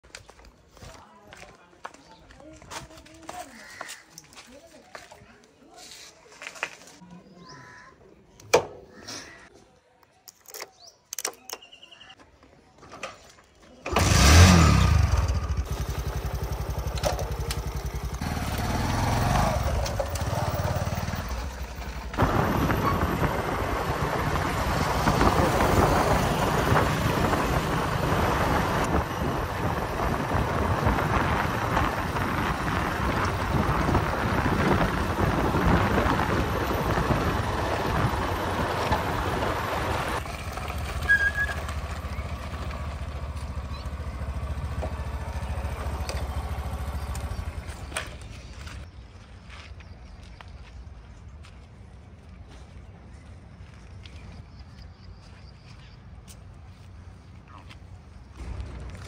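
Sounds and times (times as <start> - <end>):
diesel engine revving: 13.9 - 47.9.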